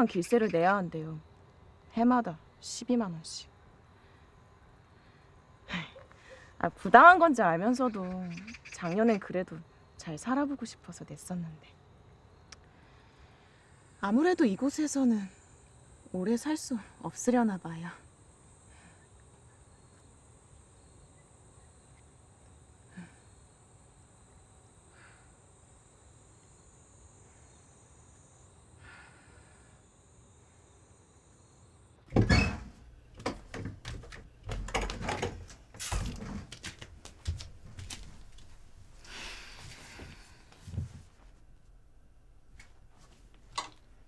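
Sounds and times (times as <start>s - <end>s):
high insect drone: 0.0s - 40.9s
thuds and clatter of handling: 32.1s - 38.3s.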